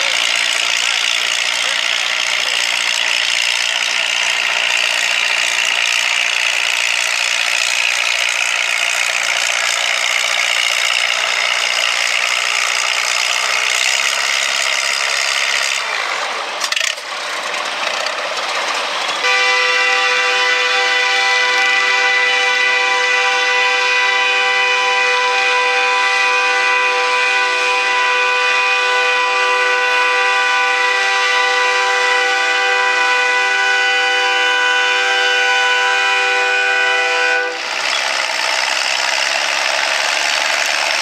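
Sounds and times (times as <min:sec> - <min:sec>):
tractor engine steady pitched note: 0:00.0 - 0:41.0
tractor engine under full load: 0:00.0 - 0:41.0.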